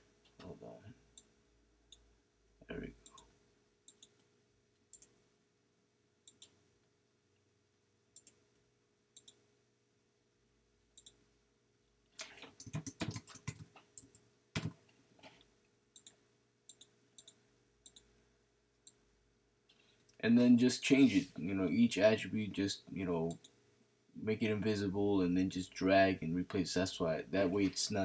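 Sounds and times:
computer mouse clicks: 3.9 - 4.3, 4.9 - 5.1, 6.3 - 6.6, 8.2 - 8.4, 9.2 - 9.4, 11.0 - 11.2, 12.2 - 14.7, 16.0 - 18.1.

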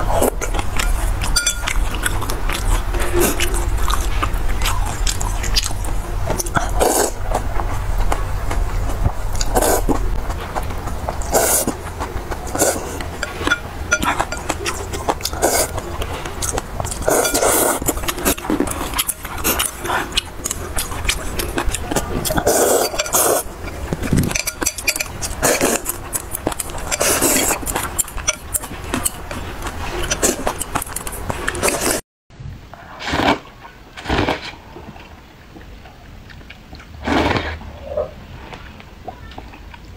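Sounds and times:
slurping noodles: 0.0 - 7.4, 9.3 - 10.0, 11.2 - 32.0, 36.9 - 38.0
chopsticks clinking on glass bowl: 0.8 - 2.8, 13.1 - 15.8, 16.5 - 29.4.

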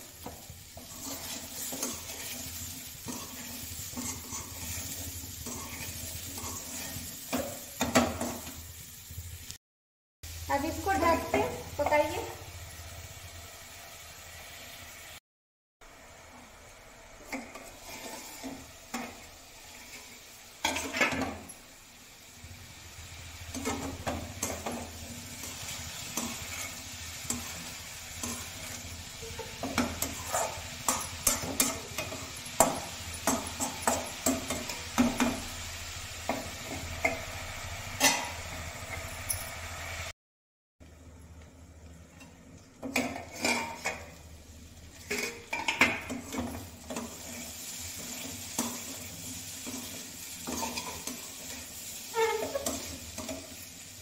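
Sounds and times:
spatula scraping a pan: 0.0 - 8.5, 17.2 - 21.6, 23.5 - 35.6, 42.8 - 44.2, 44.9 - 53.8
vegetables sizzling in a pan: 0.0 - 9.6, 10.2 - 15.2, 15.8 - 40.2, 40.9 - 54.0.

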